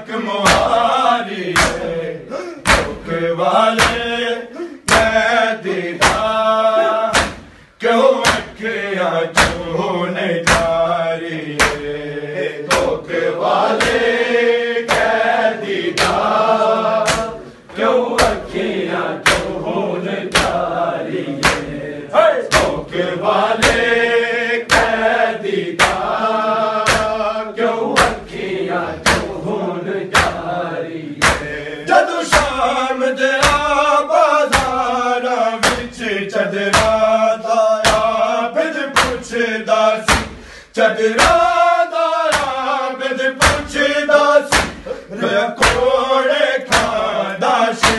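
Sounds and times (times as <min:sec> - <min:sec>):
men chanting in chorus: 0:00.0 - 0:47.9
hands slapping chests: 0:00.4 - 0:02.0, 0:02.6 - 0:04.2, 0:04.9 - 0:05.4, 0:06.0 - 0:08.7, 0:09.4 - 0:09.7, 0:10.4 - 0:10.9, 0:11.5 - 0:12.0, 0:12.6 - 0:21.9, 0:22.5 - 0:24.0, 0:24.6 - 0:27.3, 0:27.9 - 0:29.5, 0:30.1 - 0:30.5, 0:31.2 - 0:31.6, 0:32.3 - 0:32.6, 0:33.4 - 0:33.8, 0:34.4 - 0:35.0, 0:35.6 - 0:36.0, 0:36.7 - 0:37.1, 0:37.8 - 0:38.2, 0:39.0 - 0:39.3, 0:40.1 - 0:40.6, 0:41.2 - 0:42.7, 0:43.4 - 0:47.9.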